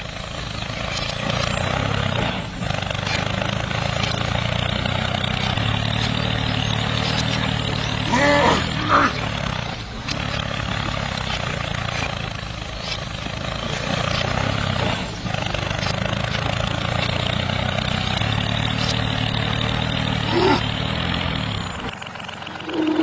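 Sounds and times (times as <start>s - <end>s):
toy tractor engine drone: 0.0s - 23.0s.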